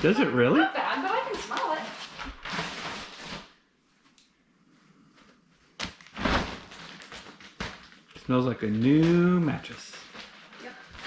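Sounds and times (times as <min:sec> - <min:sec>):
plastic wrap rustling: 0:00.0 - 0:03.7, 0:05.8 - 0:11.0.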